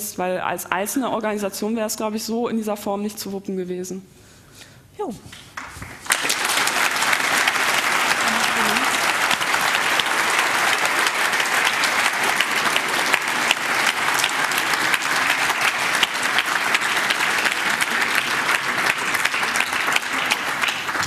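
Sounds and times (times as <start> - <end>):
audience applauding: 5.5 - 21.0.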